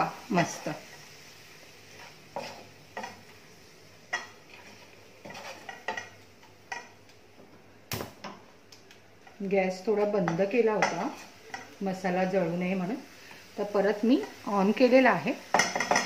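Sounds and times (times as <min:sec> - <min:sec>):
spatula scraping a pan: 0:00.3 - 0:03.5, 0:04.1 - 0:06.9, 0:10.2 - 0:11.8, 0:15.4 - 0:16.0.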